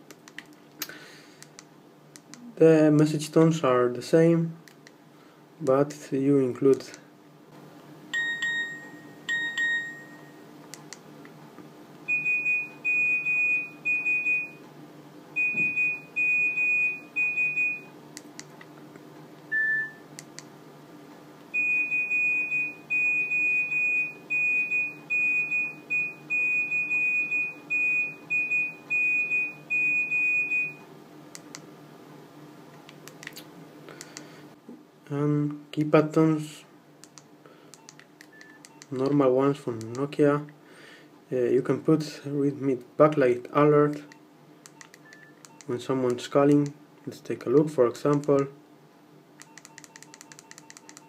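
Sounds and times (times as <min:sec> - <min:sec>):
phone alert beeps: 0:08.2 - 0:10.4, 0:12.1 - 0:14.6, 0:15.4 - 0:17.9, 0:19.5 - 0:20.0, 0:21.6 - 0:30.8.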